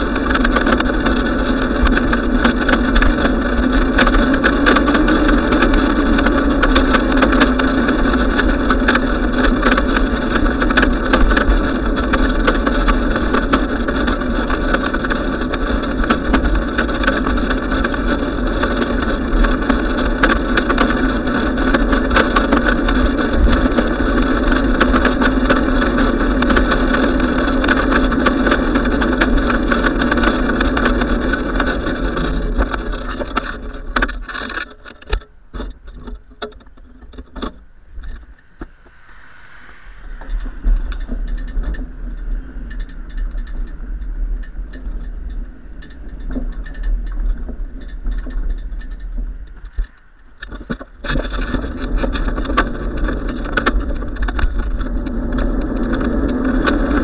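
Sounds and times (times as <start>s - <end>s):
small rattling clicks: 0.0s - 38.5s, 40.2s - 57.0s
bicycle tyres on asphalt: 0.0s - 57.0s
wind rush: 36.8s - 57.0s.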